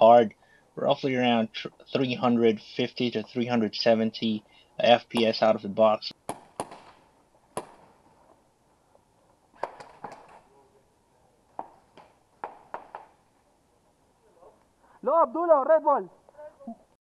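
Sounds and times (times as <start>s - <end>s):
gas pistol shots popping: 6.2s - 7.0s.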